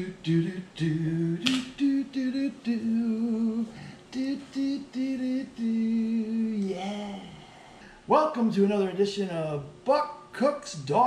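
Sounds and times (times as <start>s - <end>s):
person singing unaccompanied: 0.0s - 7.3s.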